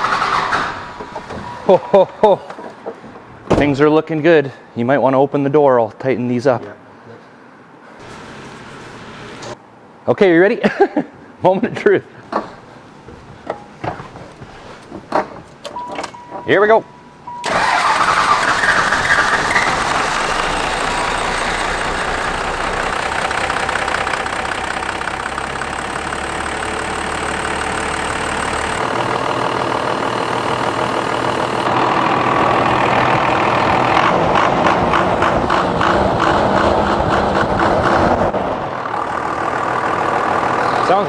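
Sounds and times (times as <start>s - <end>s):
diesel engine starting and idling: 0.0s - 1.6s, 17.3s - 41.0s.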